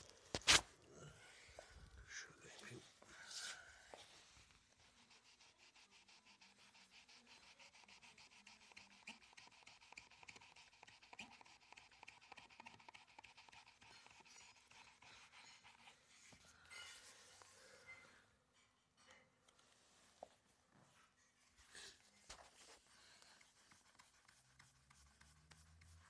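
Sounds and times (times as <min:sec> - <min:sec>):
sponge rubbing on panel: 0:04.8 - 0:16.0, 0:22.7 - 0:26.0.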